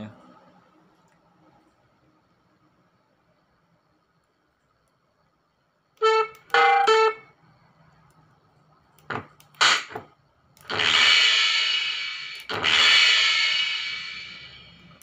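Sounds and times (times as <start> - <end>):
sharp drum hits: 10.7 - 14.8
ringing cymbal crash: 10.7 - 15.0.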